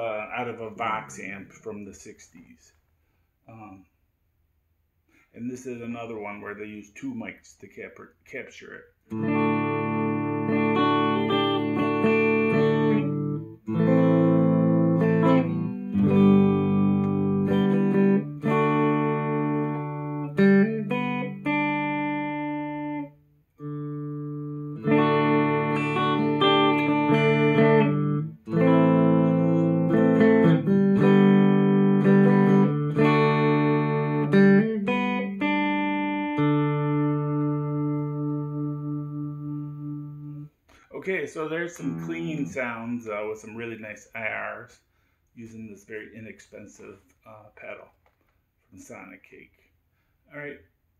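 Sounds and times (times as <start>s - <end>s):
clean electric guitar chords: 9.1s - 40.5s, 41.7s - 42.8s.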